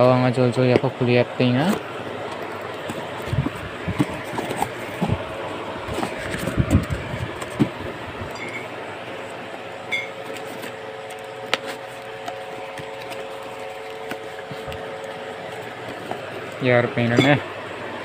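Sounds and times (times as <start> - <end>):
cardboard rustling: 1.6 - 8.0, 10.2 - 16.6.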